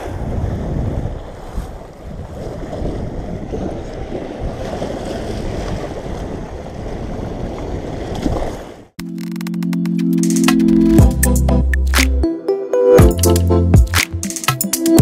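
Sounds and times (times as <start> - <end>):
wind buffeting microphone: 0.0 - 8.7
waves washing against seawall: 0.0 - 8.9.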